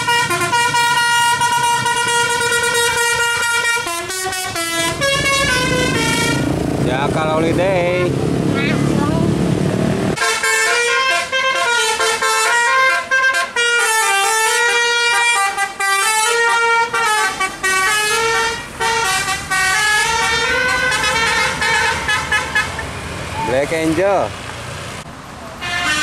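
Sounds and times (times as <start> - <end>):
musical air horn melody: 0.0 - 6.5, 10.2 - 22.8, 25.6 - 26.0.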